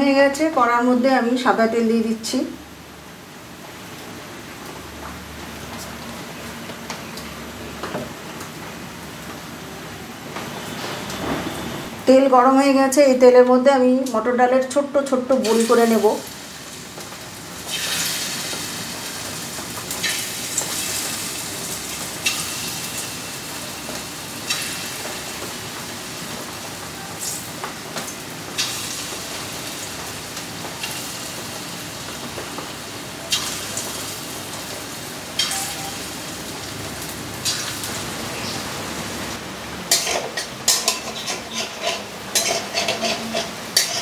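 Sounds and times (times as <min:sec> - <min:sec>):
hot oil sizzling: 0:13.8 - 0:44.0.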